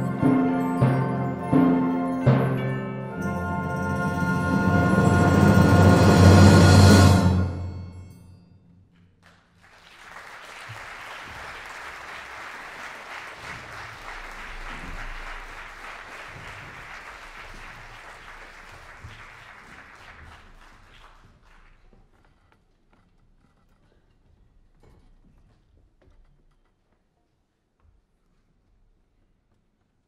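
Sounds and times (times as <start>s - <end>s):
audience applause: 9.2s - 21.9s.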